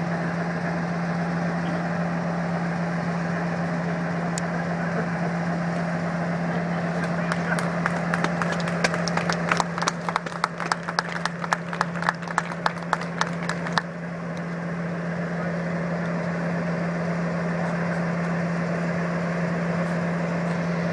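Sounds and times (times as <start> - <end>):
diesel locomotive engine idling: 0.0 - 20.9.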